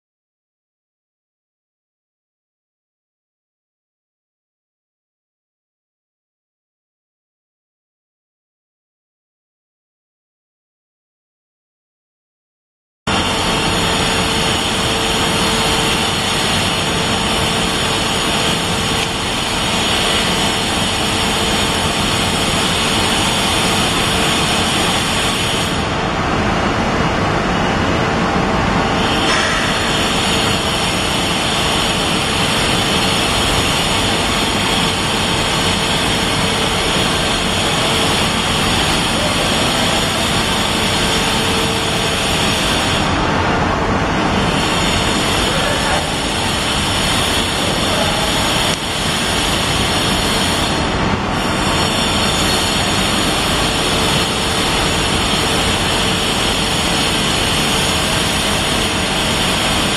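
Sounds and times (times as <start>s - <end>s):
loud rushing noise: 13.1s - 59.9s.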